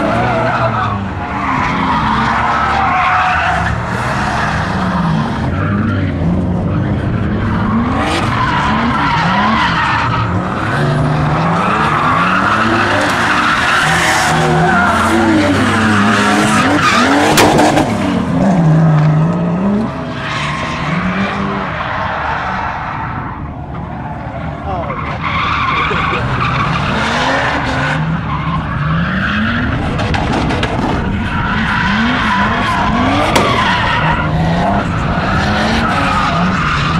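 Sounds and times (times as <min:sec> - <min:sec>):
tyres squealing on tarmac: 0:00.0 - 0:04.6, 0:07.2 - 0:17.4, 0:24.0 - 0:29.9, 0:31.0 - 0:36.9
car engine revving: 0:00.0 - 0:36.9
sharp crack: 0:33.0 - 0:33.9.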